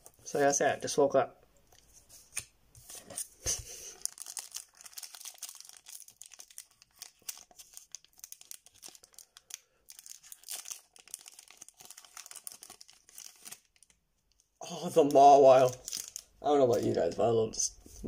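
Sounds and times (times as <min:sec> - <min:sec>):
foil wrapper tearing and crinkling: 0:03.9 - 0:14.0, 0:15.6 - 0:16.3.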